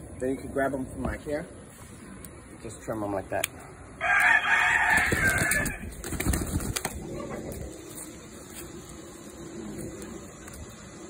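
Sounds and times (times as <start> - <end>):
rooster squawking loudly: 4.0 - 5.9.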